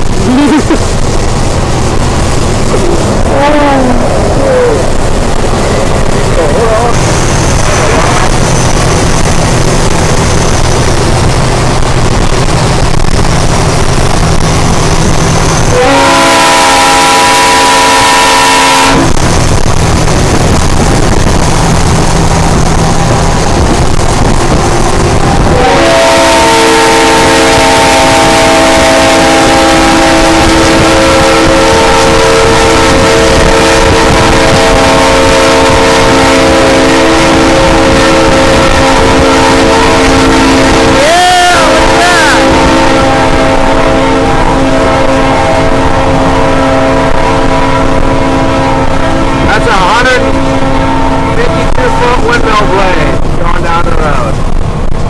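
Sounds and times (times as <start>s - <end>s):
diesel truck engine drone: 0.0s - 55.0s
truck air horn chord: 15.7s - 19.2s, 25.4s - 41.0s, 41.6s - 49.6s, 50.2s - 52.1s.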